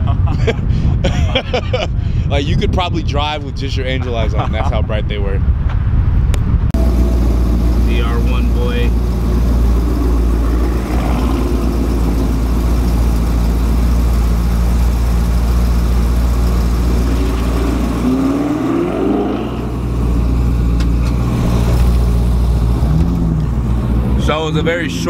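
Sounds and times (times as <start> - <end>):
car engine idling and revving: 5.6 - 25.0.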